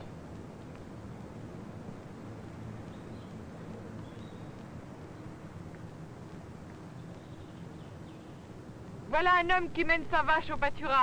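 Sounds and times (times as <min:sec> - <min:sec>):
low rumble and hiss: 0:00.0 - 0:11.0.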